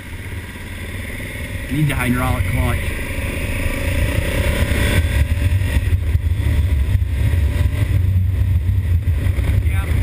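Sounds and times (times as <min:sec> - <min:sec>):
motorcycle engine accelerating: 0:00.0 - 0:10.0
wind rush on microphone: 0:02.4 - 0:10.0.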